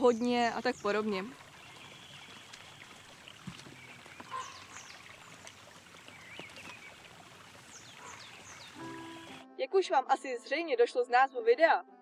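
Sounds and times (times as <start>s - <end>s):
faint trickle of stream: 0.0s - 9.4s
small birds chirping: 0.0s - 9.4s.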